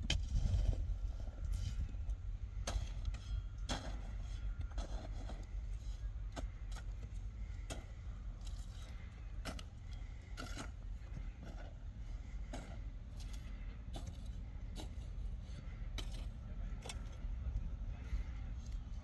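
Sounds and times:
steady low rumble: 0:00.0 - 0:19.0
hand hoe chopping into dry soil: 0:02.6 - 0:05.5.

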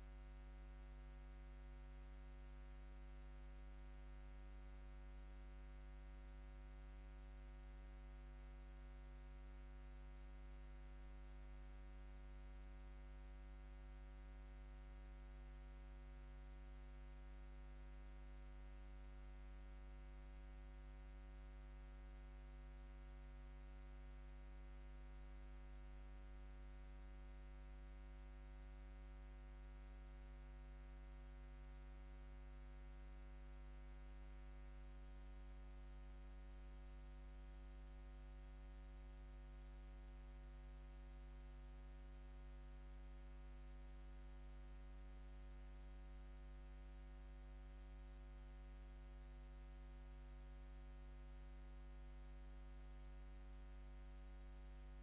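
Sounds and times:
faint electrical hum with hiss: 0:00.0 - 0:55.0.

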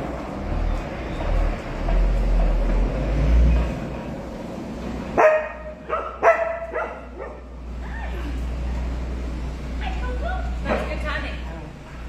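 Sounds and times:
dog barking: 0:05.2 - 0:07.5.

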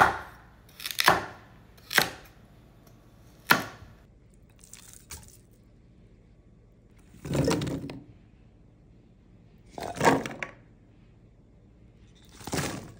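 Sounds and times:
knife chopping on wooden board: 0:00.0 - 0:02.3.

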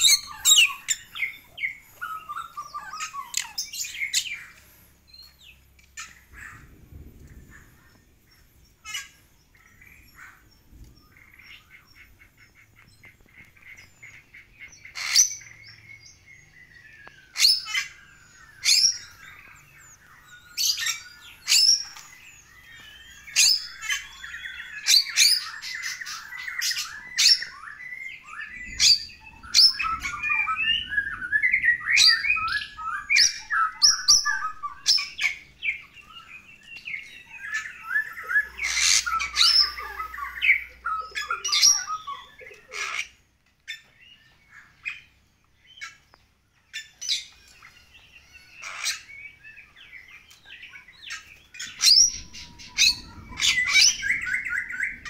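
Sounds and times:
fast chattering bird warble: 0:51.1 - 0:55.0.

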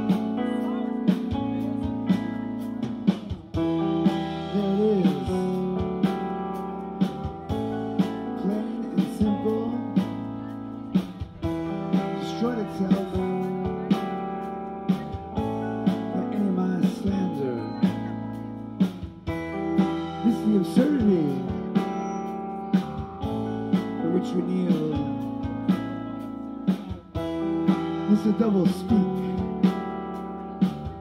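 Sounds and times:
bass guitar: 0:00.0 - 0:31.0
electric guitars: 0:00.0 - 0:31.0.

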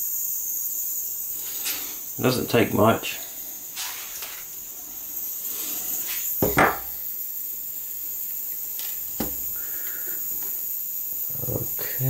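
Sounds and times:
faint steady high hiss: 0:00.0 - 0:12.0
knock on wooden workbench: 0:06.4 - 0:07.0, 0:09.2 - 0:09.4.

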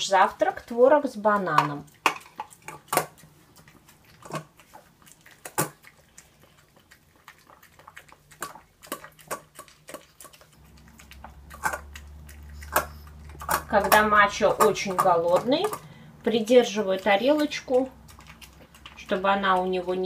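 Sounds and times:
low steady hum: 0:00.0 - 0:20.0
dog teeth tapping metal bowl: 0:01.5 - 0:03.2, 0:12.6 - 0:15.9.

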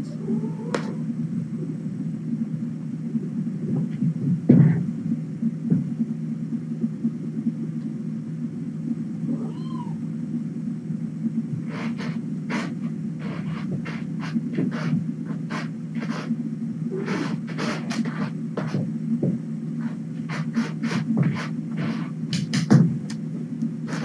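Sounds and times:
steady low hum: 0:00.0 - 0:24.0
kitten meow: 0:09.3 - 0:10.0
taps and scratches: 0:11.6 - 0:16.3, 0:17.0 - 0:23.2.

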